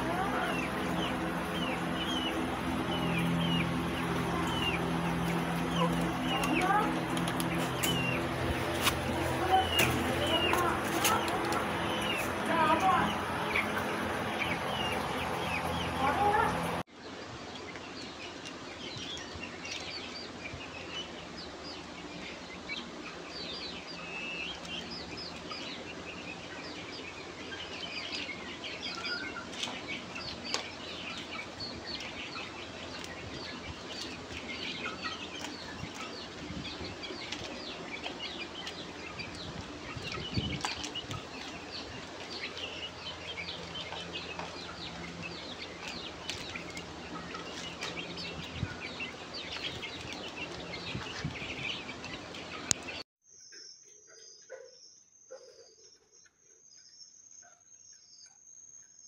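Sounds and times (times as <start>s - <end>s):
rustling in wood shavings: 0.0s - 17.4s
chickens chirping and clucking: 0.0s - 53.1s, 54.1s - 58.3s.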